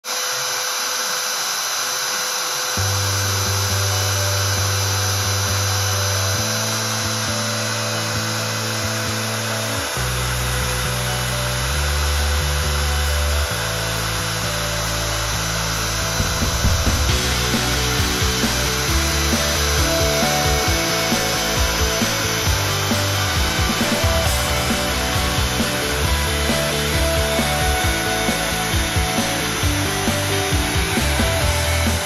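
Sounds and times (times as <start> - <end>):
router spindle whine cutting metal: 0.0 - 32.0
background music with held chords: 2.8 - 32.0.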